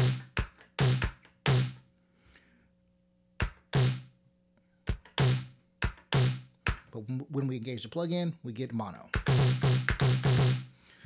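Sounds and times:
drum machine beat: 0.0s - 1.8s, 3.4s - 4.1s, 4.9s - 6.9s, 9.1s - 10.7s.

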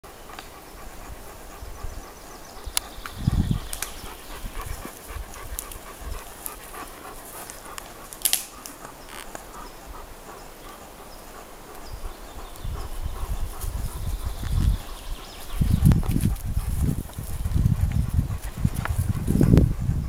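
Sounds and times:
dog panting: 0.1s - 20.0s
paws rustling in leaves: 0.7s - 10.0s, 10.6s - 19.6s
sharp click: 7.5s - 9.4s.

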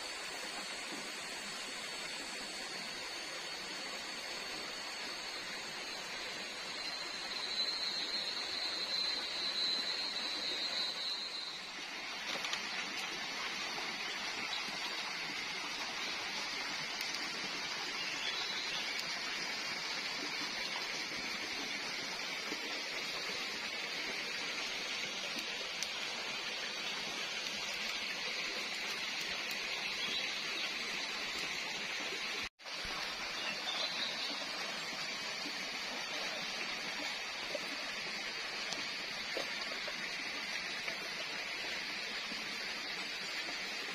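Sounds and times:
thin high whine: 0.0s - 13.1s
water rushing: 0.0s - 43.9s.

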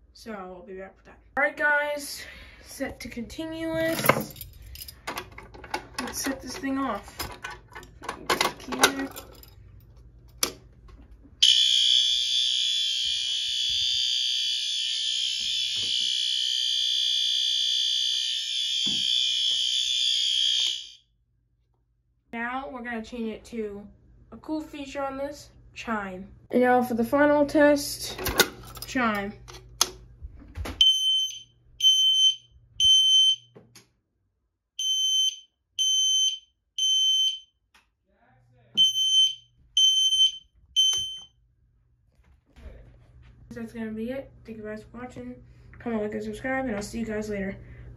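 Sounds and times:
steady alarm horn tone: 11.4s - 21.0s.

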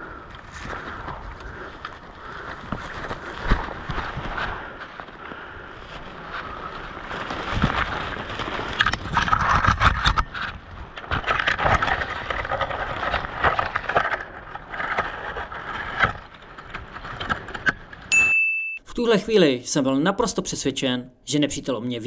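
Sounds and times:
gear scraping and rustling: 0.0s - 18.1s.

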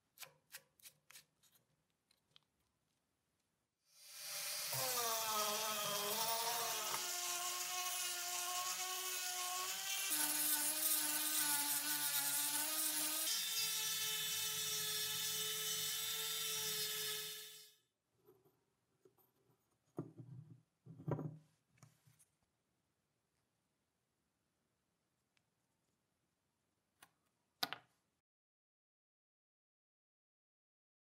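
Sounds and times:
rotary tool grinding metal: 4.0s - 17.7s.

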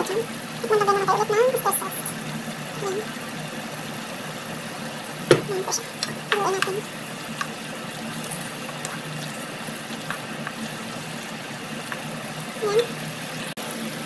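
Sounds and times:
vegetables simmering in pan: 0.0s - 14.0s
wooden spatula stirring pan: 8.2s - 12.3s.

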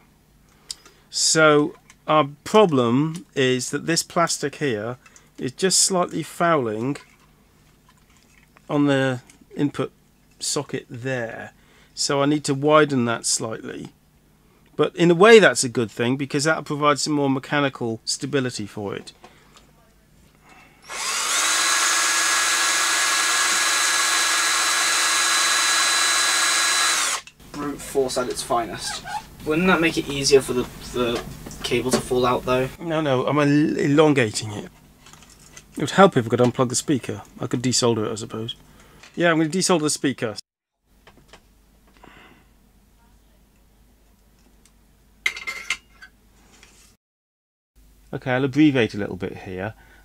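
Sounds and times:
rotary tool grinding plastic: 20.8s - 27.4s.

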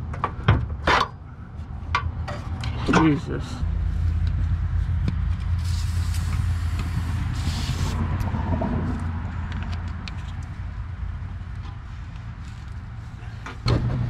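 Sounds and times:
low steady rumble: 1.2s - 14.0s
aerosol spray can hissing: 5.6s - 8.0s.

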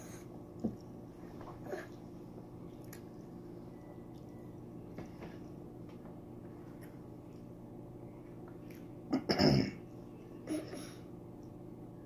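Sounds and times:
faint steady hum: 0.0s - 12.0s
woman clearing her throat: 9.1s - 9.8s.

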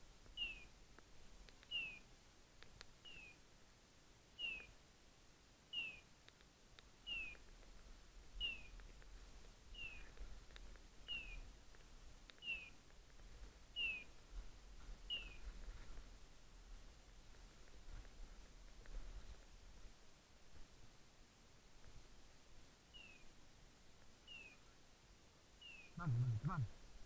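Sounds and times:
beeper collar chirping: 1.7s - 2.0s, 5.7s - 6.0s.

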